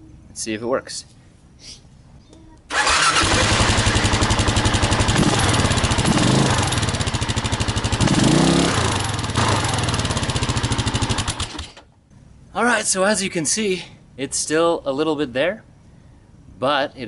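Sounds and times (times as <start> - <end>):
motorcycle engine running: 2.7 - 11.6.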